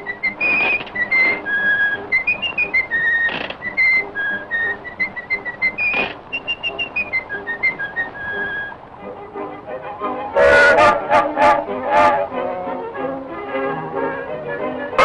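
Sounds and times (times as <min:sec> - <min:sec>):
light band accompaniment: 0:00.0 - 0:15.0
whistled melody: 0:00.0 - 0:15.0.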